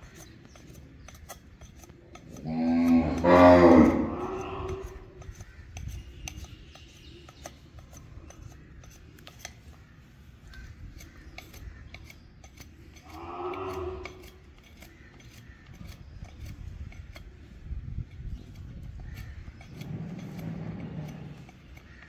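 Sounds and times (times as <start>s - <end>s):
blade scraping hoof: 0.0s - 22.0s
calf mooing: 2.4s - 4.9s, 13.1s - 14.2s.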